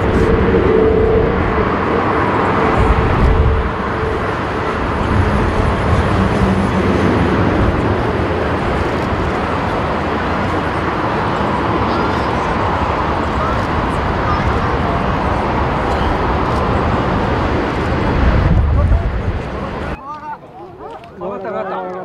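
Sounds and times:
jet engine roar: 0.0s - 20.0s.

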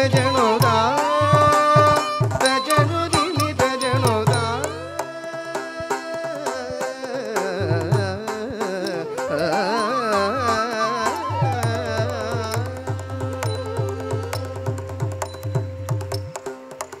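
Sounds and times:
ornamented melody: 0.0s - 17.0s
hand drum strokes: 11.1s - 17.0s.

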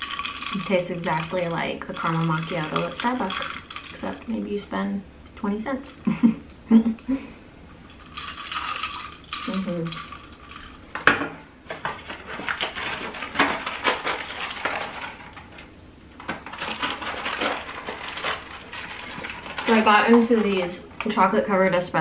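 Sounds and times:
clicking and rattling objects: 0.0s - 4.1s, 11.7s - 21.1s.

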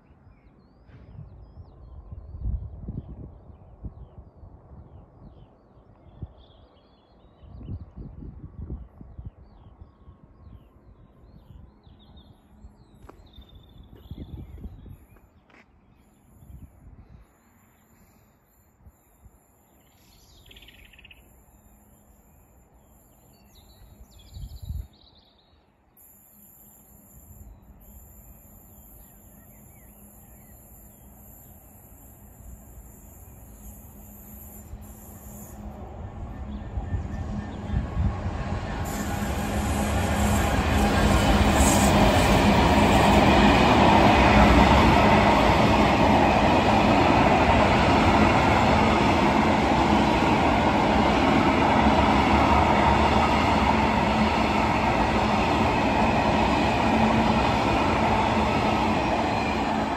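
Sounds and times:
small birds chirping: 10.4s - 35.6s
diesel locomotive rumble: 29.4s - 59.9s.

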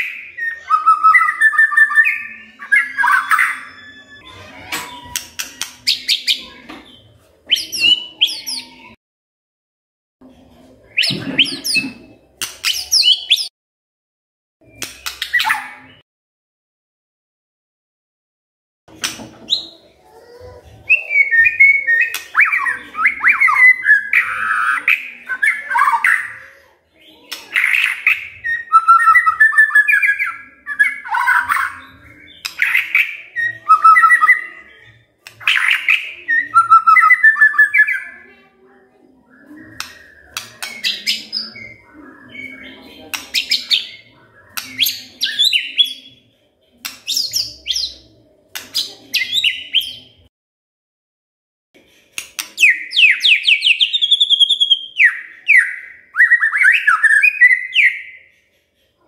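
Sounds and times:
bird singing whistled phrases: 0.0s - 5.2s, 7.5s - 9.0s, 20.9s - 26.4s, 27.6s - 38.2s, 52.6s - 58.3s.

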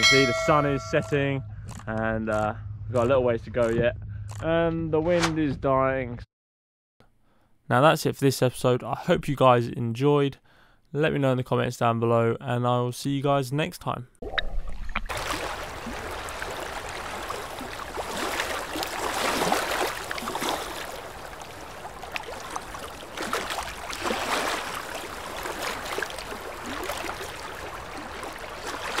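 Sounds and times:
sea water sloshing and splashing: 14.2s - 29.0s.

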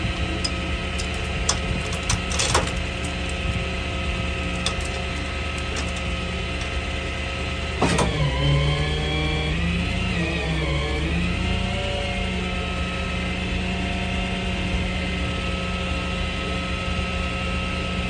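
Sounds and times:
truck engine droning: 0.0s - 18.0s
chains clinking and rattling: 1.0s - 3.5s, 4.4s - 6.7s
metal clank: 4.6s - 6.7s.

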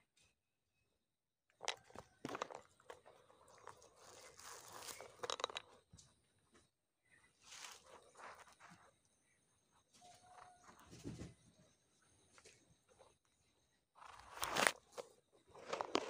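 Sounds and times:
crunching dry leaf litter: 3.5s - 5.1s, 7.4s - 8.4s.

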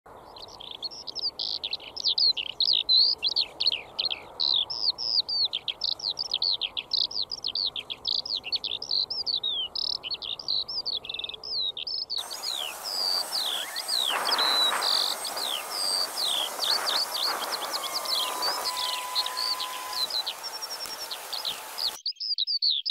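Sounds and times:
songbirds chirping: 0.1s - 22.9s
steady background hiss: 12.2s - 22.0s.

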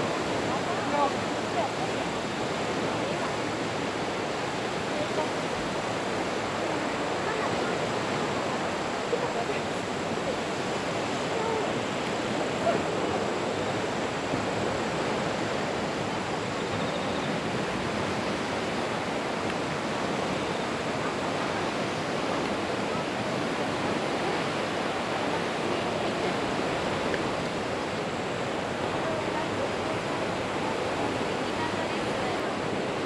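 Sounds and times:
small lake waves: 0.0s - 33.0s
wind: 0.0s - 33.0s.

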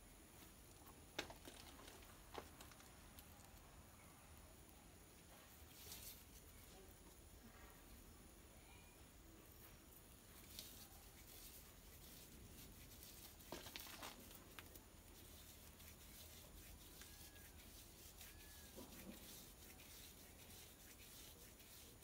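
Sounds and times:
fibres rubbed between palms: 5.2s - 8.0s, 9.4s - 22.0s.

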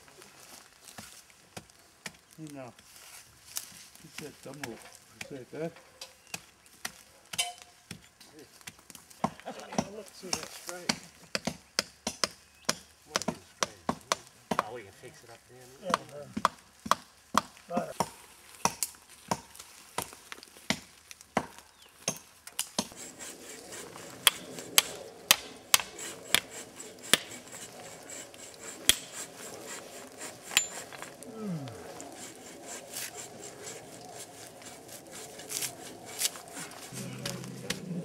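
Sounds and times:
tool striking tree bark: 9.8s - 14.8s, 15.9s - 31.2s, 32.2s - 36.8s.

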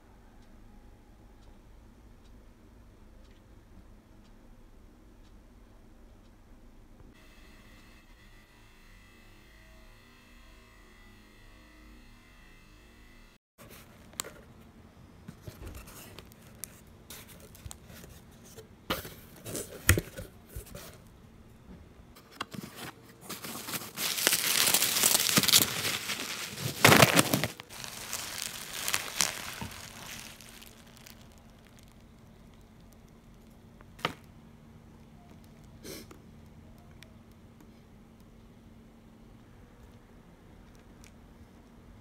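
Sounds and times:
plastic packing material crinkling: 22.7s - 33.5s
scattered clicks and crackles: 23.7s - 38.5s.

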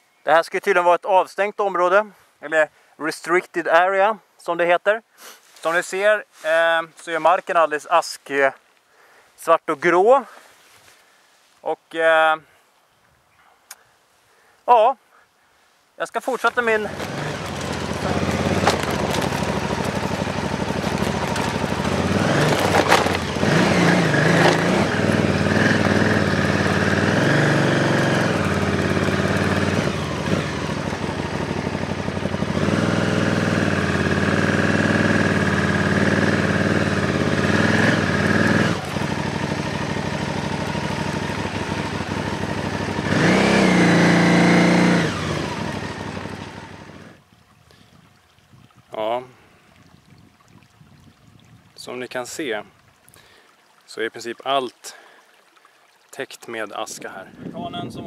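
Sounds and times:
motorcycle engine revving: 16.5s - 47.2s.

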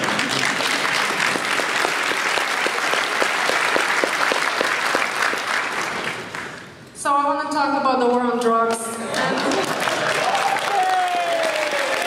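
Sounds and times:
audience applauding: 0.0s - 6.7s, 9.1s - 12.0s.

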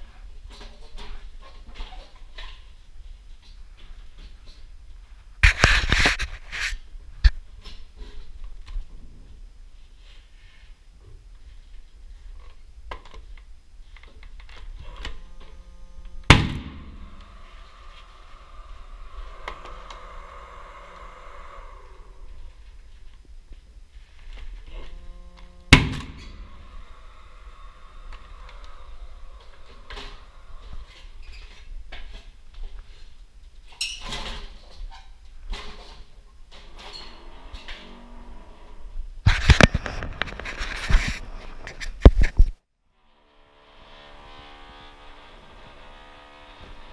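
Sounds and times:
knocks and scrapes of tools: 5.4s - 9.2s, 24.2s - 38.1s, 39.3s - 42.6s
pneumatic nailer shot: 16.2s - 17.2s, 25.7s - 26.5s.

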